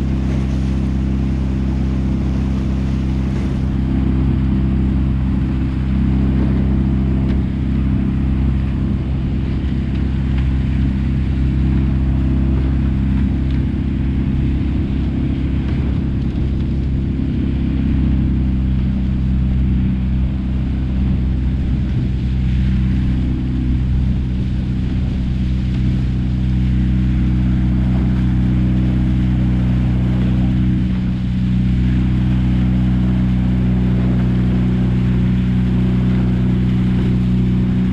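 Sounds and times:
boat engine humming: 0.0s - 37.9s.

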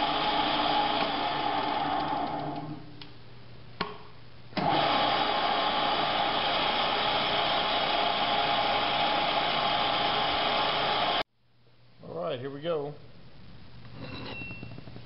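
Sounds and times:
milling machine drilling whir: 0.0s - 2.6s, 4.6s - 11.2s.

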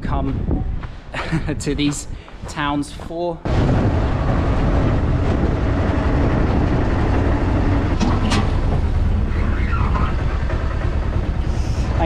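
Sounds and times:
vehicle ride rumble: 3.5s - 12.0s.

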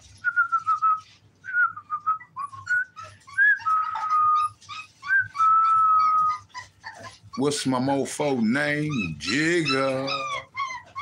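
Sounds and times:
faint clicks and scuffles: 0.0s - 1.5s
person whistling: 0.2s - 4.4s.

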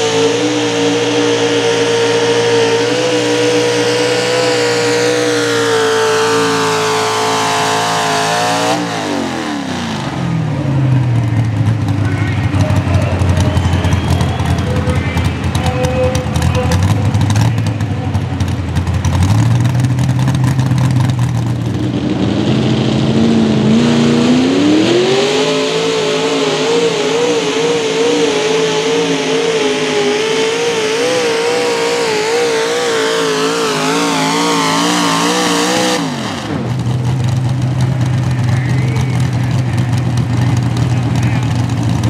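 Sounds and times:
engine revving high with wobbling pitch: 0.0s - 11.4s, 19.2s - 42.0s
tractor engines running under load: 0.0s - 24.6s, 27.4s - 42.0s
low steady engine note: 10.1s - 23.6s, 36.5s - 42.0s.

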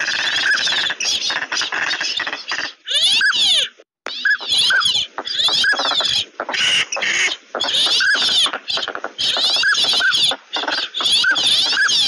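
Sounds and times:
duck whistles: 4.1s - 12.0s.

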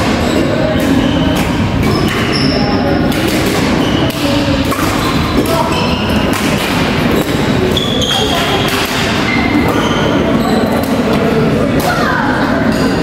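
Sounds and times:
background chatter: 0.0s - 13.0s
rackets striking shuttlecock: 3.0s - 9.8s
shoes squeaking on wooden floor: 7.1s - 10.8s.

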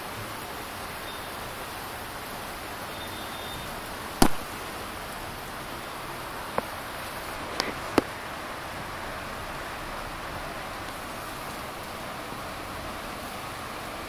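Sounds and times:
steady rain falling: 0.0s - 14.0s
sharp knock: 4.2s - 4.4s.

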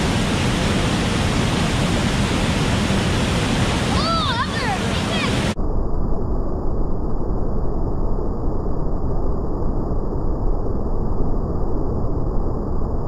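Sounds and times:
waterfall deep rush: 0.0s - 5.6s.

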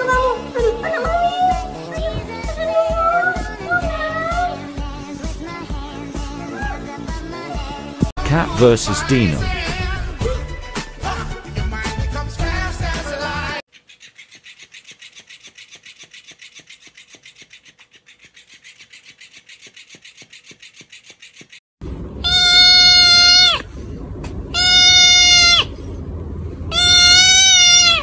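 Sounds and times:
kitten meowing: 22.2s - 23.6s, 24.6s - 25.7s, 26.7s - 28.0s.

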